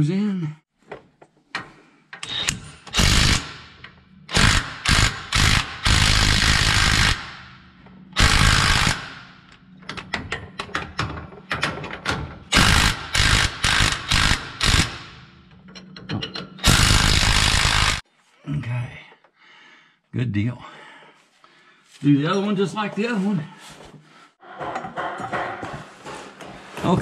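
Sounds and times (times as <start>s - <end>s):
impact wrench hammering: 2.1s - 7.6s, 8.2s - 18.0s.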